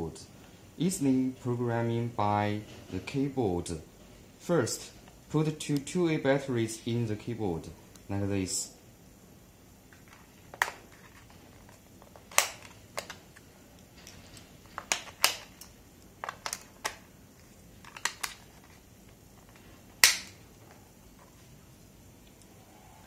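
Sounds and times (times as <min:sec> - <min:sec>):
plastic clicks and rattles: 0:10.0 - 0:17.0, 0:17.8 - 0:18.8.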